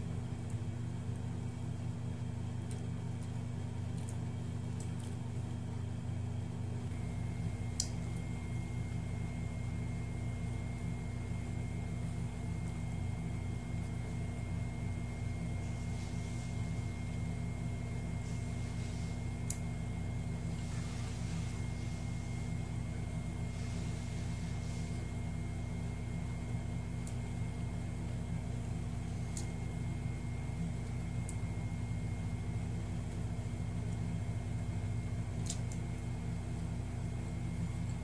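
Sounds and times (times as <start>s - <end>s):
low machine hum: 0.0s - 38.0s
faint sharp clicks: 7.8s - 8.0s.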